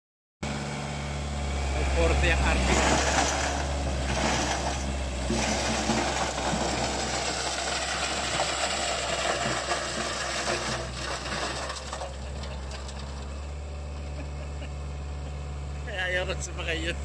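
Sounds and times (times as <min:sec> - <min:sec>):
tractor engine drone: 0:00.4 - 0:17.0
tiller blades clattering in soil: 0:02.6 - 0:13.4.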